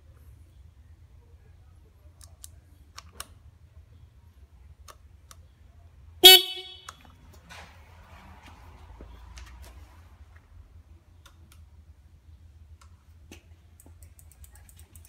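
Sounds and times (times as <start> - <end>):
motorcycle horn beep: 6.2 - 7.0.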